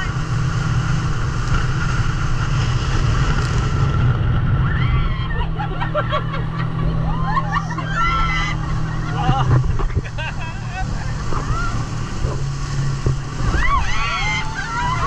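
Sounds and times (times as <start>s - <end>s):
motorboat engine running: 0.0s - 15.0s
wind buffeting microphone: 0.0s - 15.0s.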